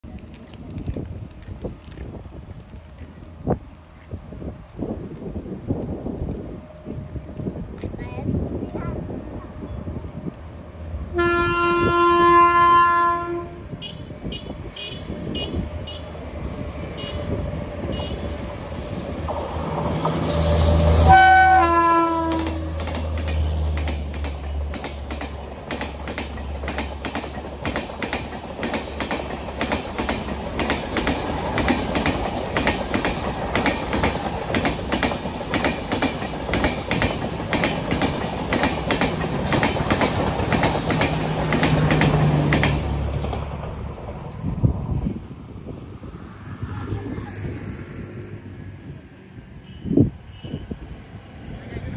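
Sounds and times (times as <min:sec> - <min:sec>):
train coaches rumbling and clacking: 0:00.0 - 0:51.9
train horn blasts: 0:11.1 - 0:16.1, 0:17.0 - 0:18.3, 0:20.4 - 0:22.8.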